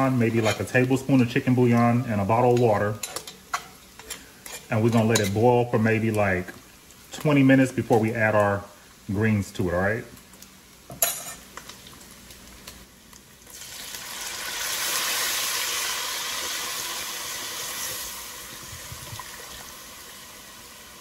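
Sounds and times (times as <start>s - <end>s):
steam hiss and sizzle: 0.0s - 21.0s
water poured into hot pot: 13.5s - 21.0s.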